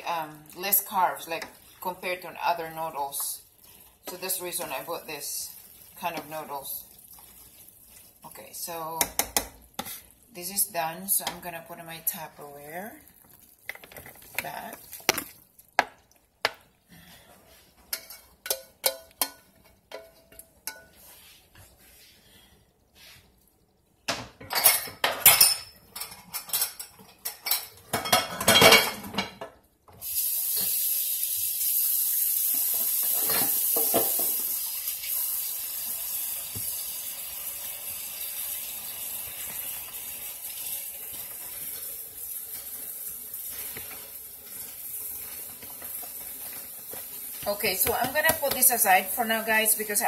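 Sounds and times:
water running from tap: 0.1s - 10.1s, 30.0s - 50.0s
dishes and pots clattering: 17.8s - 21.2s, 24.1s - 29.6s, 32.6s - 34.5s.

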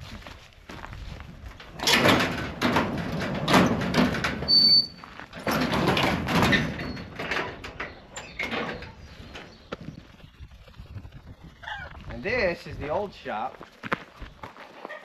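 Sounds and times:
sliding barn door rolling shut: 1.6s - 9.1s.

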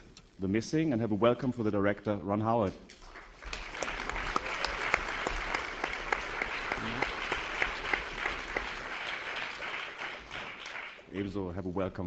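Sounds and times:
audience applauding: 3.0s - 11.3s.

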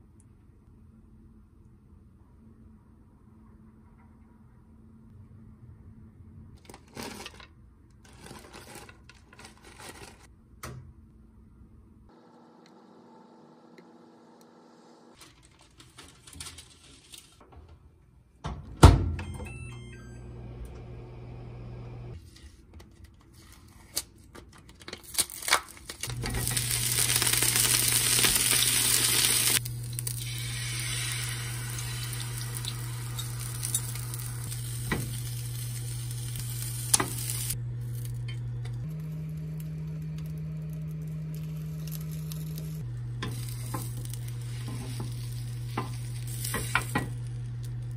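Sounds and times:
low hum: 19.2s - 22.2s, 26.1s - 47.9s
egg sizzling in a pan: 26.1s - 37.6s, 43.2s - 47.8s.

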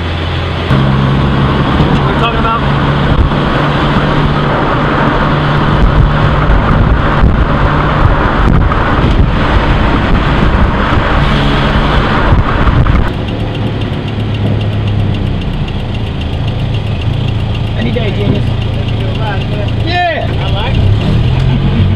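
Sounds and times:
car engine driving: 0.0s - 21.9s
road noise: 0.0s - 21.9s
wind noise: 0.6s - 17.6s
engine idling: 12.8s - 21.9s.

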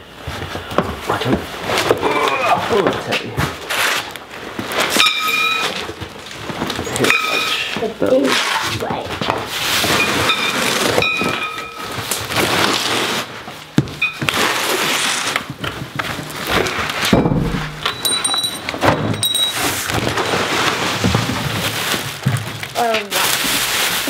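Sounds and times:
rustling: 1.4s - 24.0s
cardboard flaps scraping: 7.8s - 11.1s, 11.9s - 17.8s, 19.6s - 24.0s
knocks and thunks: 17.1s - 18.1s.

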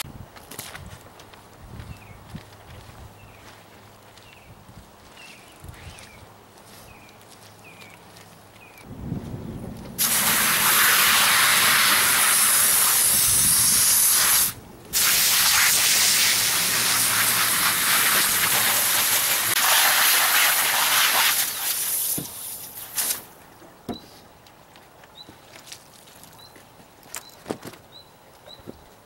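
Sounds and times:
hose water spraying on plastic: 10.0s - 23.4s.

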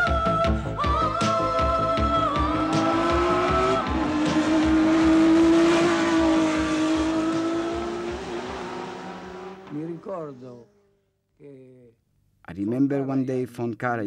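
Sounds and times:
racing car engine at high revs: 1.5s - 10.1s.

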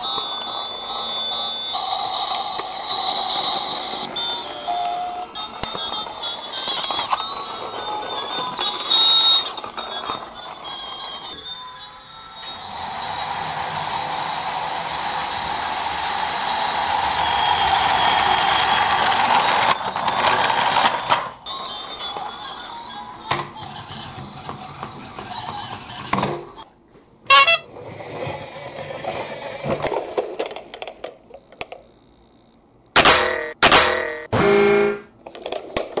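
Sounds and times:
toy train motor whirring: 0.0s - 26.7s, 27.3s - 31.8s.

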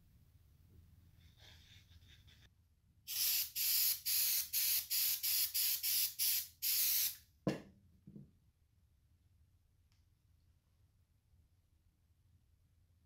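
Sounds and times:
aerosol can spraying: 3.1s - 7.2s.

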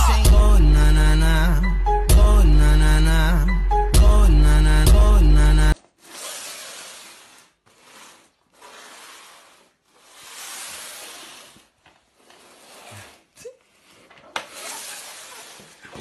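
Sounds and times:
cardboard box scraping on floor: 5.8s - 16.0s.

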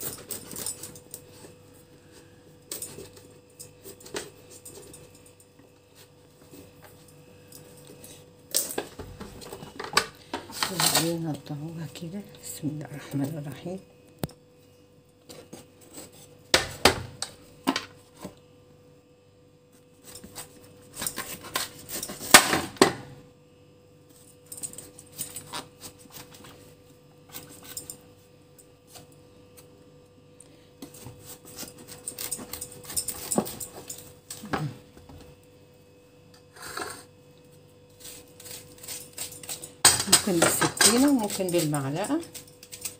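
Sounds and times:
knife scraping pumpkin: 20.0s - 22.3s, 30.8s - 34.6s, 36.5s - 37.1s, 37.9s - 42.9s.

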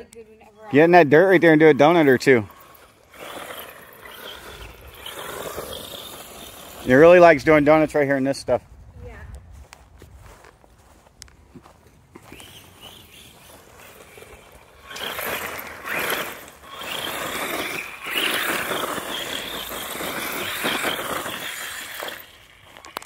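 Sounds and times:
tyres scrabbling in dirt: 0.0s - 8.0s, 11.5s - 23.0s
electric toy truck motor whining: 1.4s - 7.3s, 12.2s - 23.0s.

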